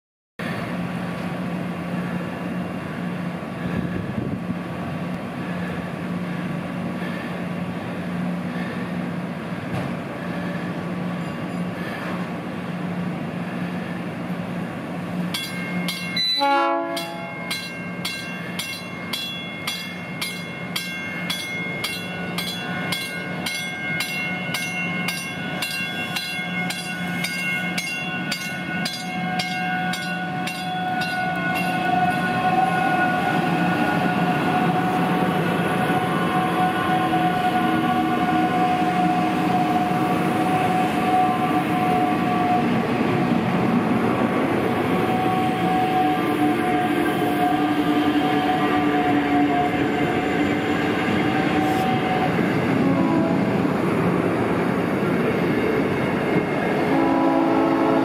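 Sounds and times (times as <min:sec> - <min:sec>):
electric train humming: 0:00.4 - 0:58.0
train horn blast: 0:16.2 - 0:17.6, 0:29.2 - 0:43.0, 0:44.9 - 0:53.8, 0:56.8 - 0:58.0
bell ringing: 0:17.0 - 0:32.2.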